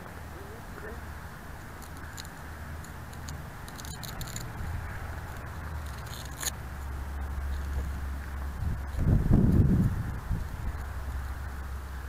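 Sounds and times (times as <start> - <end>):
steady low rumble: 0.0 - 12.0
handling scrapes clicks and rattles: 1.8 - 4.6, 5.3 - 6.6.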